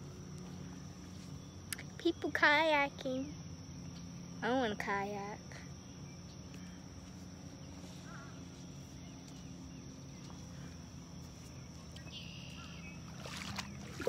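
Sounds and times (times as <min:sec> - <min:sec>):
low hum: 0:00.0 - 0:14.0
faint chirps: 0:03.1 - 0:14.0.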